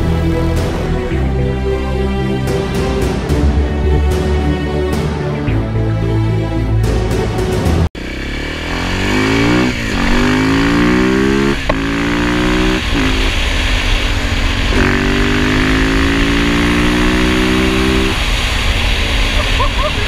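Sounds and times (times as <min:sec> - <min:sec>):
motorcycle engine accelerating: 0:08.0 - 0:20.0.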